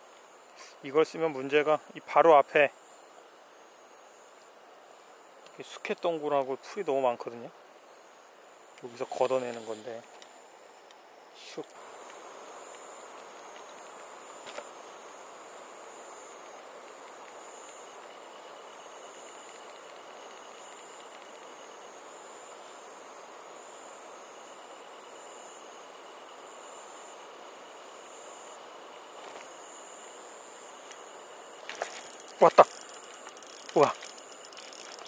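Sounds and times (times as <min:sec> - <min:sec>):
crickets and insects chirring: 0:00.0 - 0:35.0
low hiss: 0:00.0 - 0:35.0.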